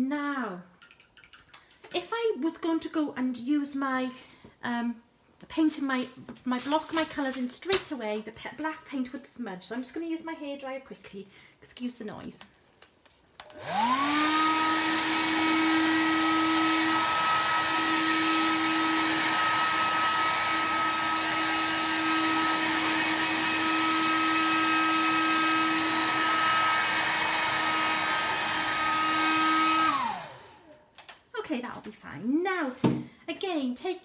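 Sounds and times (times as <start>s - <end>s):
hair dryer running: 13.4s - 30.8s.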